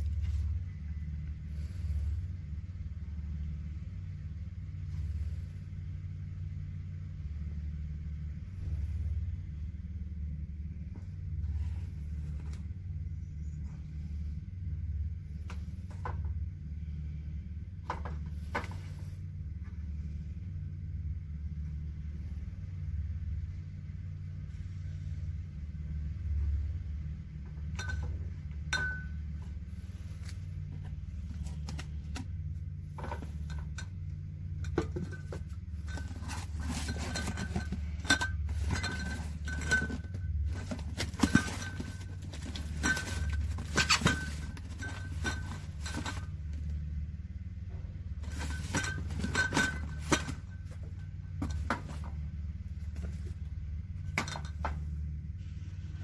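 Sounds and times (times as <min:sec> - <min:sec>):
steady low hum: 0:00.0 - 0:56.0
metal cans clinking: 0:48.2 - 0:50.5.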